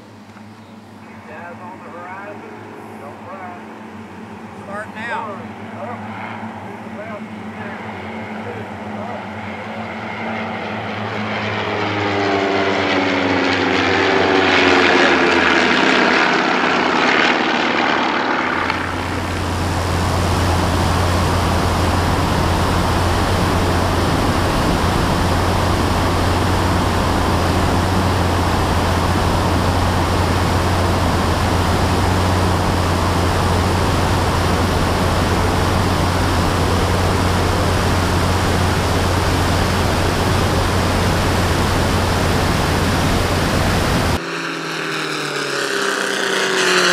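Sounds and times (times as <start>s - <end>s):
engine and propeller drone: 0.0s - 46.9s
propeller planes passing overhead: 0.0s - 46.9s
wind rush: 13.0s - 44.2s.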